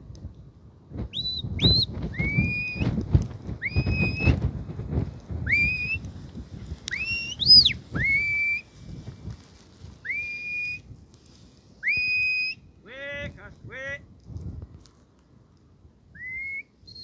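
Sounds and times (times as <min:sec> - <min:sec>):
wind rumble on microphone: 0:00.0 - 0:17.0
whistled commands: 0:01.1 - 0:03.0, 0:03.6 - 0:04.4, 0:05.4 - 0:06.0, 0:06.9 - 0:08.7, 0:10.0 - 0:10.8, 0:11.8 - 0:12.7, 0:16.1 - 0:17.0.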